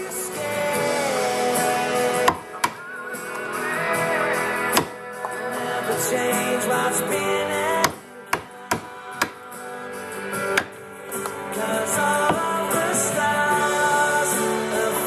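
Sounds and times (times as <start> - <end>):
background music: 0.0 - 15.0
chisel knocking into wood: 7.8 - 9.4.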